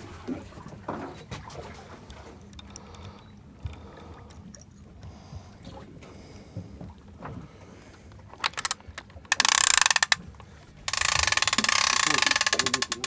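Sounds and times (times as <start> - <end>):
boat engine hum: 0.0 - 13.0
fishing reel ratchet clicking: 8.4 - 10.2, 10.9 - 13.0.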